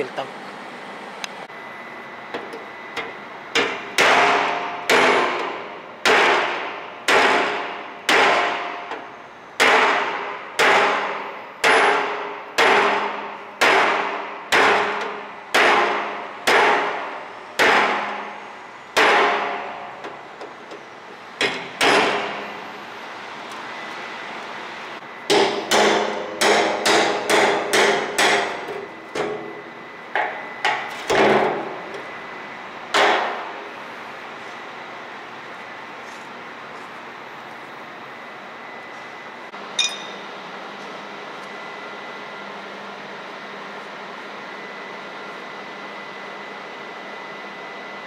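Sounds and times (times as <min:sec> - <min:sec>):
hammer striking chisel on steel drum: 0:25.3 - 0:28.6, 0:39.8 - 0:40.2.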